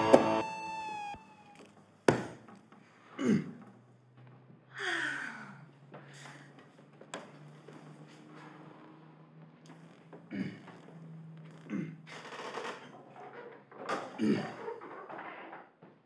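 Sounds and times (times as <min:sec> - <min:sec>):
held musical note sliding down: 0:00.0 - 0:01.5
falling sighs: 0:04.8 - 0:06.5.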